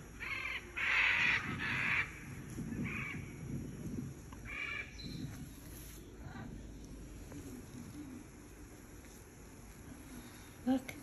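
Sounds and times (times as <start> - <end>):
macaws squawking: 0.1 - 3.4, 4.4 - 5.2.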